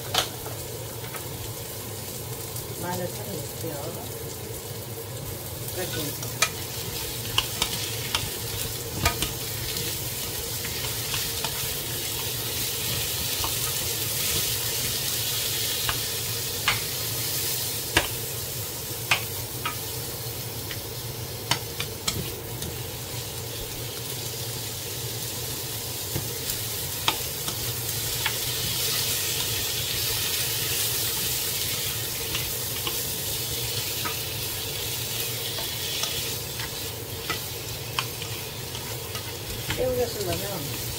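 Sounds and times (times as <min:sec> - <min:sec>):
vegetables sizzling in a frying pan: 0:00.0 - 0:40.9
wooden utensils clicking on pan: 0:07.2 - 0:09.5, 0:10.6 - 0:14.6, 0:17.9 - 0:18.2, 0:19.0 - 0:19.8, 0:21.5 - 0:22.8, 0:27.0 - 0:40.9.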